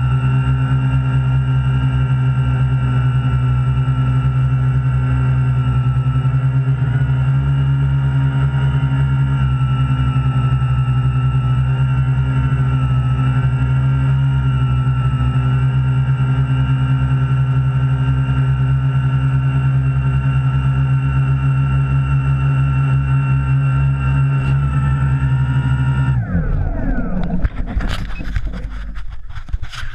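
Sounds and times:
drone motors and propellers: 0.0s - 29.9s.

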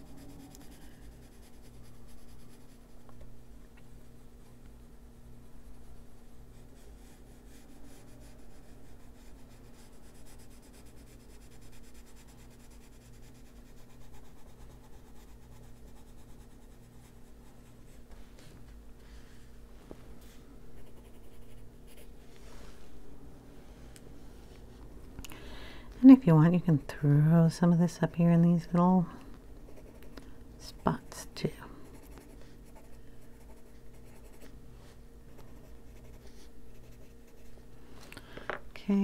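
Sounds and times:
pencil scratching on paper: 0.0s - 2.9s, 6.6s - 17.7s, 20.8s - 22.1s, 31.9s - 34.5s, 35.6s - 37.5s
steady low hum: 0.0s - 39.0s.

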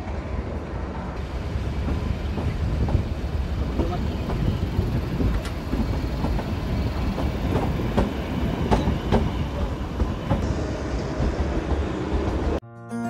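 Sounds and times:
steady train rumble: 0.0s - 12.6s
train wheels clicking over rail joints: 1.5s - 10.4s.

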